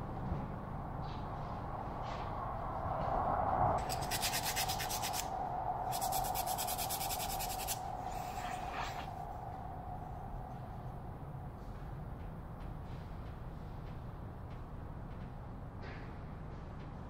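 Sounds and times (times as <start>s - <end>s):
steady hum: 0.0s - 12.6s
wood sanding strokes: 3.8s - 5.2s, 5.9s - 9.1s.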